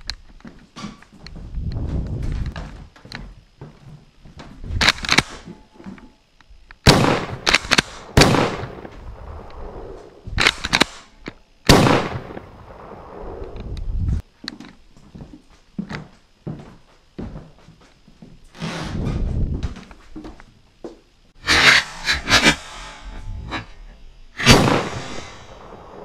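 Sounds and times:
airsoft shotgun shots: 0:06.9 - 0:09.0, 0:11.7 - 0:12.9, 0:24.4 - 0:26.0.

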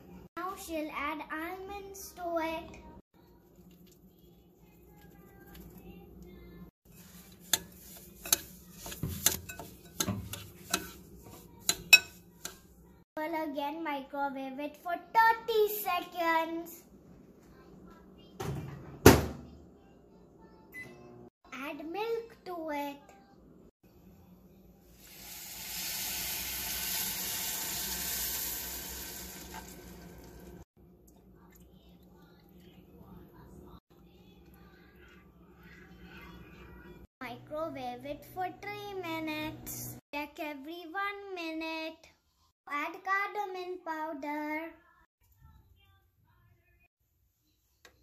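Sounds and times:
metal spoon scraping mixture: 0:06.8 - 0:12.8
spoon clinking against glass bowl: 0:11.6 - 0:12.6
milk sizzling on hot food: 0:24.8 - 0:30.7.

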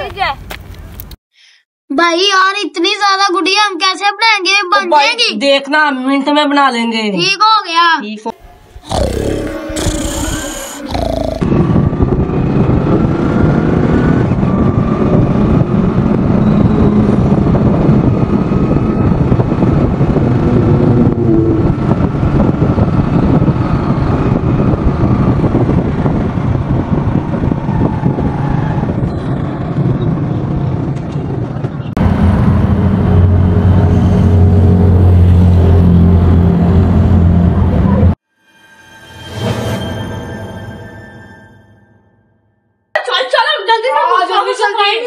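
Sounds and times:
vehicle engine and road noise: 0:00.0 - 0:01.2, 0:08.4 - 0:38.2.

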